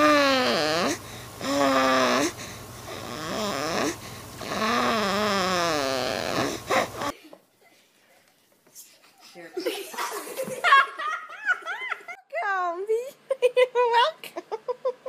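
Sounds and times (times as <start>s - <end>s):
baby squeaking and grunting: 0.0s - 2.3s, 2.9s - 7.2s.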